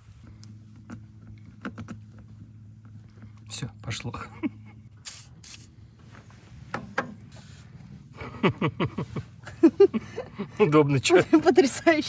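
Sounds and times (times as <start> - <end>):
short hisses: 5.0 - 5.7.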